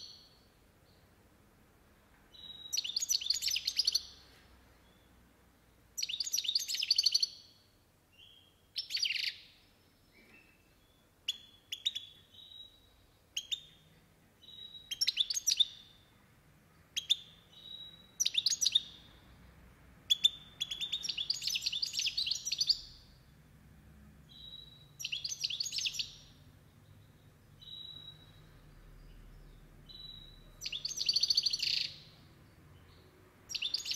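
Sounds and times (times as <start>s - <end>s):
finch singing twittering trills: 2.3s - 4.2s, 6.0s - 7.6s, 10.1s - 16.1s, 16.9s - 19.2s, 20.1s - 23.1s, 24.3s - 33.9s.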